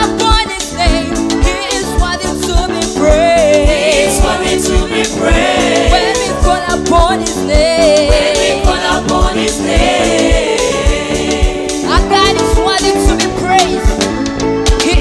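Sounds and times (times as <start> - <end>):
woman singing lead: 0.0 - 14.0, 14.7 - 15.0
drum kit beat: 0.0 - 15.0
electric bass: 0.0 - 15.0
women backing singers: 3.0 - 12.4.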